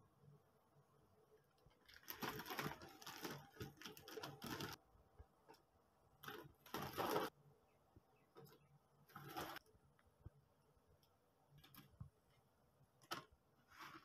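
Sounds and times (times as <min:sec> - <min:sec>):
plastic packaging crinkling: 0:01.7 - 0:04.8, 0:06.2 - 0:07.3.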